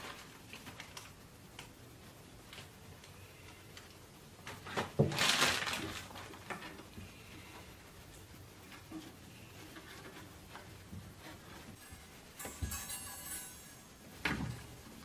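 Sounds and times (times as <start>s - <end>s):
plastic bag rustling: 0.0s - 1.2s, 4.4s - 7.2s.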